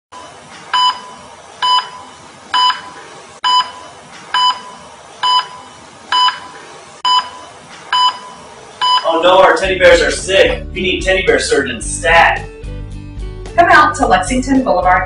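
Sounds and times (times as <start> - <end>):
heart-rate monitor beeping: 0.2 - 9.2.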